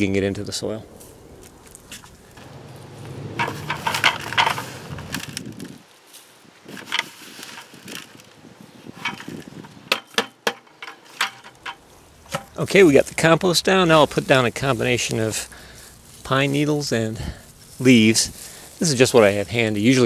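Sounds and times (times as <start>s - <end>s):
low steady hum: 0.0s - 5.2s
compost rustling and crunching: 0.0s - 20.0s
sharp clicks and knocks: 1.7s - 5.6s, 9.0s - 12.6s.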